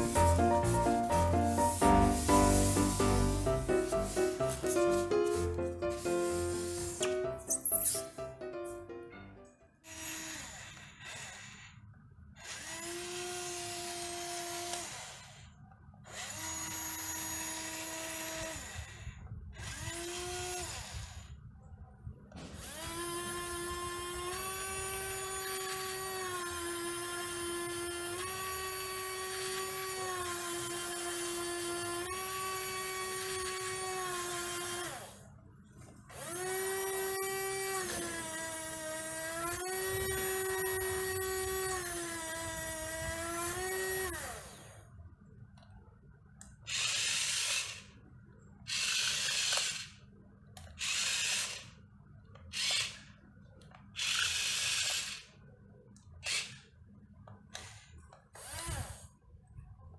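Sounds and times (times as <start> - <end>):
toy motor whining hum: 0.0 - 8.1, 9.8 - 21.5, 22.6 - 35.3, 36.1 - 44.9, 46.6 - 48.0, 48.7 - 53.2, 53.9 - 55.4, 56.1 - 56.8, 57.5 - 59.2
short motor buzzing: 36.1 - 44.8, 58.4 - 59.1.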